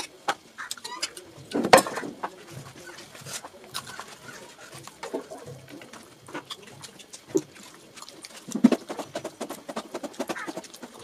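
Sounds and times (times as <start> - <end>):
hand mashing wet rice: 2.6 - 11.0.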